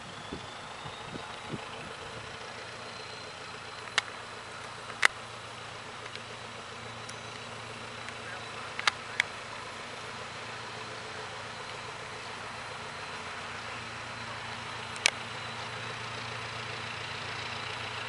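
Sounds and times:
distant diesel locomotive hum: 0:00.0 - 0:18.0
sharp clicks: 0:02.4 - 0:12.4, 0:14.7 - 0:15.7.

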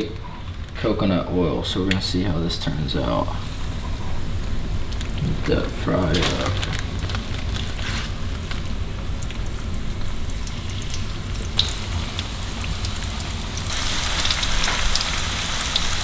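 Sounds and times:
fish frying in oil: 0:03.4 - 0:16.0.

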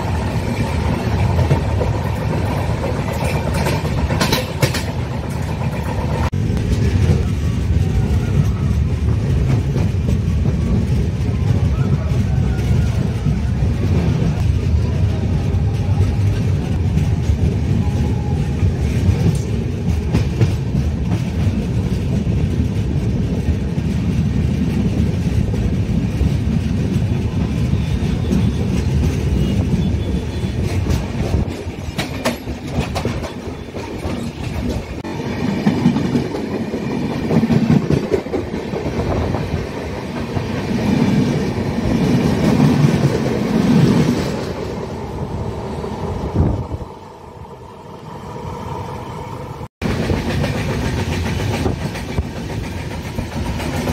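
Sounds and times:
wheels clacking over track: 0:00.0 - 0:08.5
train rumbling on rails: 0:00.0 - 0:53.9.

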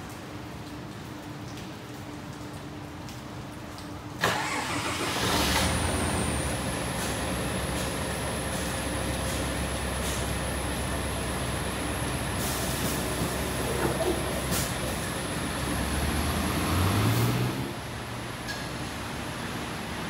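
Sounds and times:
diesel bus engine running: 0:04.3 - 0:18.1.

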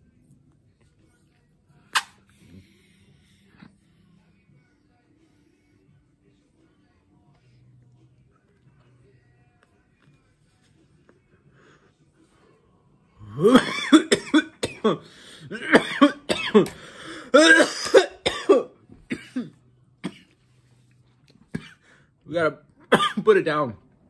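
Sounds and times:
man coughing: 0:13.3 - 0:20.3, 0:21.5 - 0:21.9, 0:22.9 - 0:23.4.

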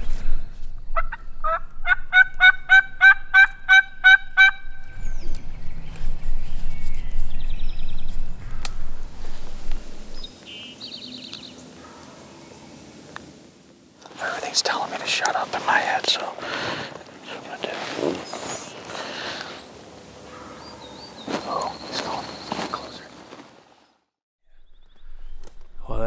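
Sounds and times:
faint high bird chirps: 0:20.4 - 0:23.1.

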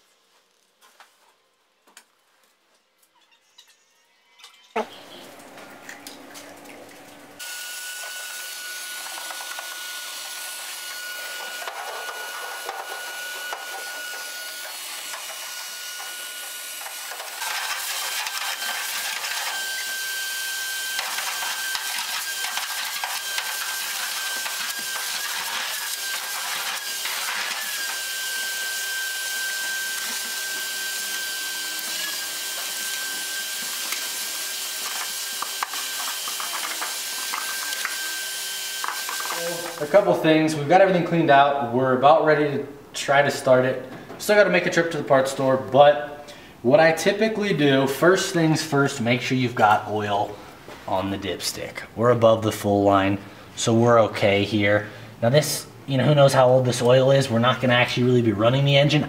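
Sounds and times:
vacuum cleaner whining: 0:04.8 - 0:40.9.

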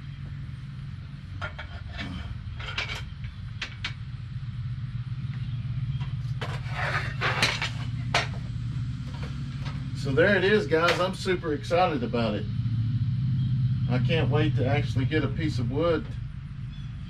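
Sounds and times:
steady low hum: 0:00.0 - 0:17.0
saw parts clicking and clanking: 0:01.4 - 0:04.0, 0:06.0 - 0:08.4, 0:10.8 - 0:11.2.

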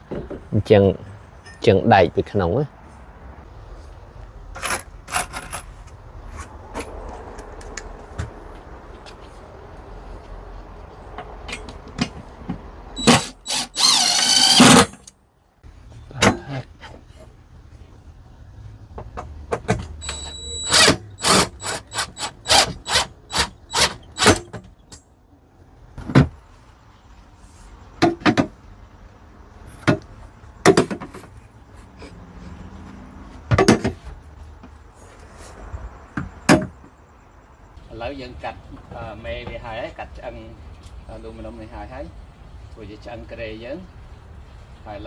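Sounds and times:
power drill running: 0:13.0 - 0:14.9, 0:20.0 - 0:24.3.

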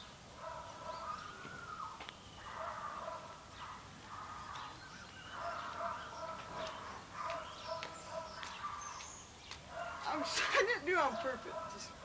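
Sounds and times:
faint high bird chirps: 0:00.7 - 0:02.8, 0:04.4 - 0:09.9.

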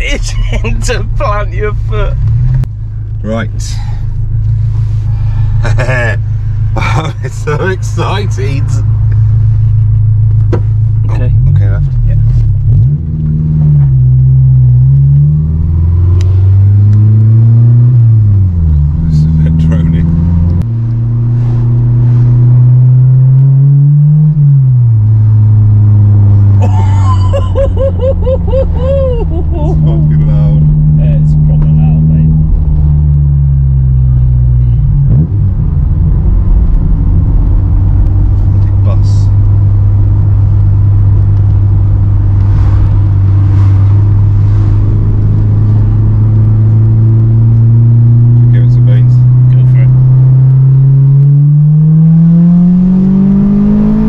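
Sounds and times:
car engine droning: 0:00.0 - 0:54.0
person laughing: 0:00.1 - 0:00.8, 0:05.6 - 0:06.2, 0:06.8 - 0:08.0, 0:26.6 - 0:30.4.

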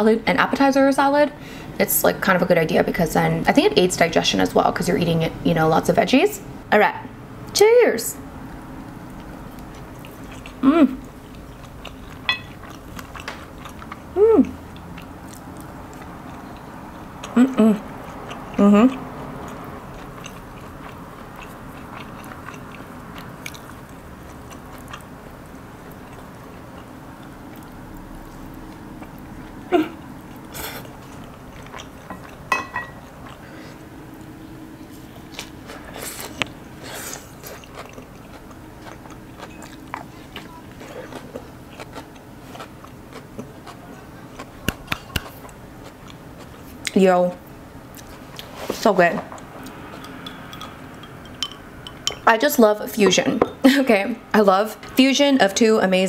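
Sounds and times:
woman chewing spaghetti: 0:08.8 - 0:34.4, 0:35.0 - 0:48.7
woman humming mm: 0:10.6 - 0:11.0, 0:14.2 - 0:14.6, 0:17.4 - 0:17.9.

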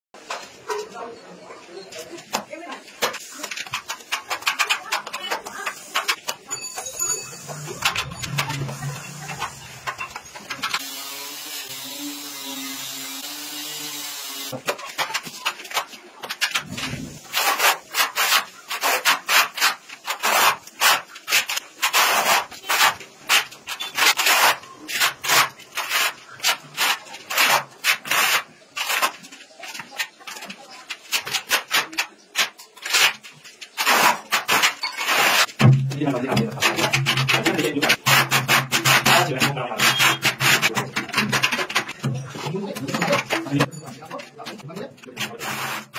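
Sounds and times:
hand tool scraping hard surface: 0:33.8 - 0:45.9.

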